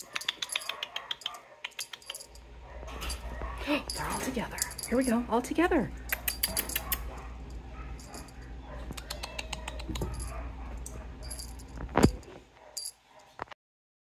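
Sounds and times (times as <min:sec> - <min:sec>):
cat toy jingling and clicking: 0:00.0 - 0:07.1, 0:08.0 - 0:08.4, 0:09.4 - 0:12.9.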